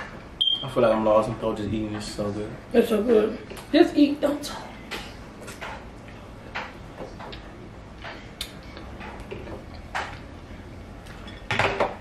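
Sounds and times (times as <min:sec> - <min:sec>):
eating clicks and smacks: 0:08.4 - 0:10.2.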